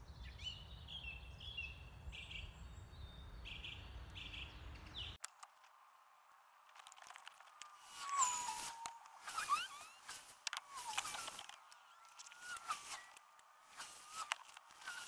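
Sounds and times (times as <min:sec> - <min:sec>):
songbird singing: 0:00.0 - 0:05.5, 0:07.0 - 0:15.0
faint clicks: 0:05.2 - 0:15.0.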